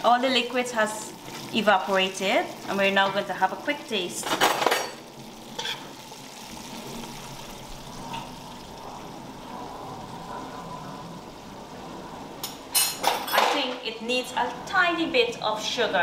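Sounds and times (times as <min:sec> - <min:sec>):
sauce bubbling in a pot: 0:00.0 - 0:12.6.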